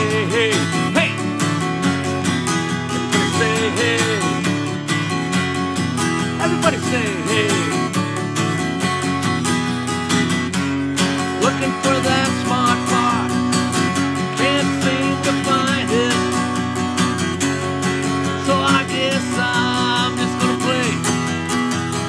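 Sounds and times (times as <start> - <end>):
man singing: 0.0 - 2.2, 2.8 - 5.2, 6.2 - 8.6, 11.0 - 16.9, 17.8 - 21.6
acoustic guitar strumming: 0.0 - 22.0.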